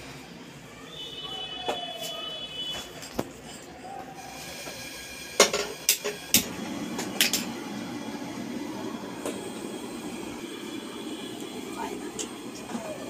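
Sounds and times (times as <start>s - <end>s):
gas flame rushing: 4.2s - 13.0s.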